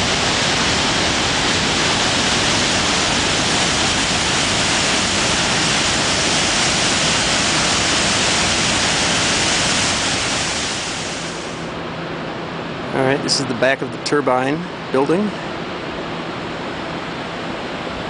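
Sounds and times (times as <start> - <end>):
water rushing over dam: 0.0 - 11.6.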